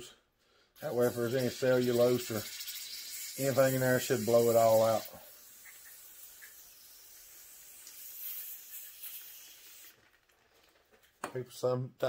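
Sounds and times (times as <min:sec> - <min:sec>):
pressurised spray hissing: 0:00.8 - 0:10.0.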